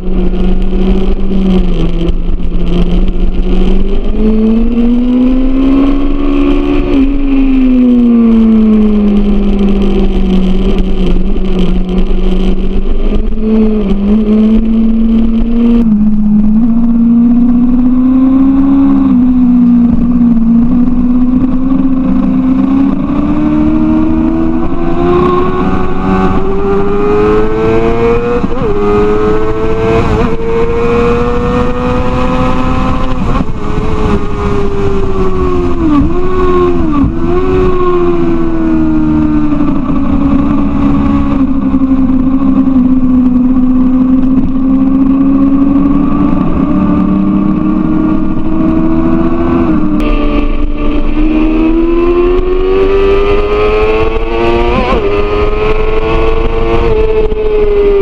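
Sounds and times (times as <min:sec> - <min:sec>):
motorcycle engine revving hard: 0:00.0 - 0:58.0
wind noise: 0:00.0 - 0:58.0.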